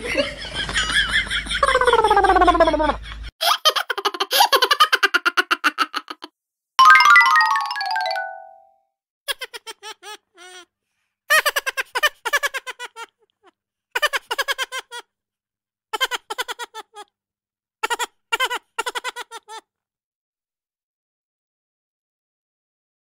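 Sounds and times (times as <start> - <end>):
child giggle effect: 0.6 - 6.3, 9.3 - 10.6, 11.3 - 13.2, 14.0 - 15.1, 16.0 - 17.1, 17.8 - 19.6
descending chime run: 6.8 - 8.8.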